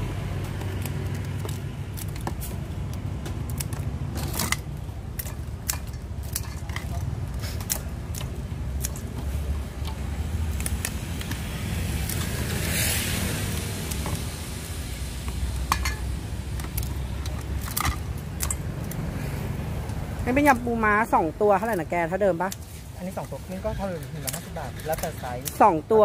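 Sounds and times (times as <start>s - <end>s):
scissors snipping crab shell: 4.5s - 9.2s, 9.8s - 14.4s, 24.1s - 25.9s
scissors scraping: 22.5s - 25.8s.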